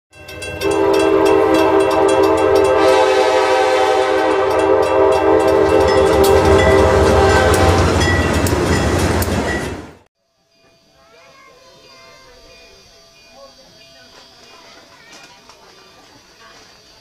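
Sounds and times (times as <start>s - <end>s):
train on rails: 0.1s - 10.1s, 11.8s - 17.0s
crossing bell clanging: 0.1s - 15.1s
locomotive air horn blast: 0.6s - 8.4s
locomotive engine rumble: 0.6s - 10.0s.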